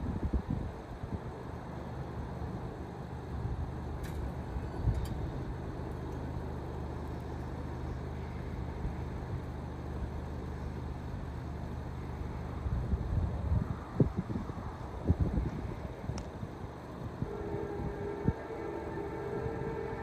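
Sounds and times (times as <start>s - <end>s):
wind buffeting microphone: 0.0s - 1.4s, 12.4s - 20.0s
engine rumble with hum: 0.0s - 20.0s.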